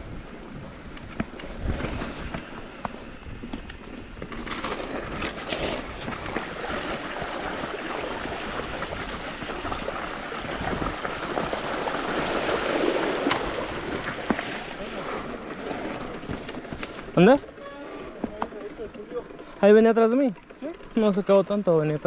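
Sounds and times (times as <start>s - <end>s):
bike clicks and rattles: 0.8s - 7.1s, 15.3s - 22.0s
tyres rushing through water: 5.4s - 18.0s.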